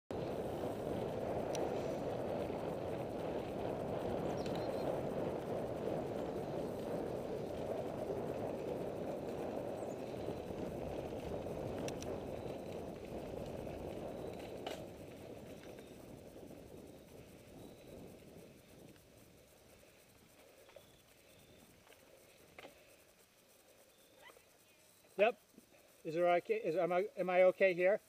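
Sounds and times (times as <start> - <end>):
rumbling of riding on dirt trail: 0.1 - 28.0
faint clicks: 1.4 - 2.0, 4.3 - 4.9, 6.2 - 16.3, 17.0 - 26.1.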